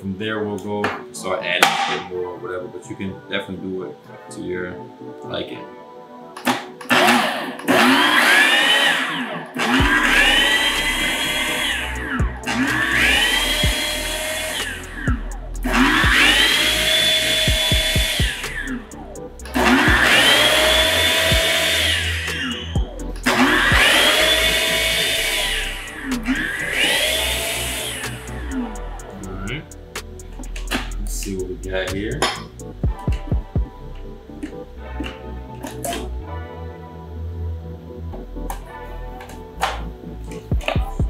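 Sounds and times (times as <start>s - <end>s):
food processor motor whining: 6.9s - 14.8s, 15.8s - 18.4s, 19.6s - 22.6s, 23.2s - 25.7s.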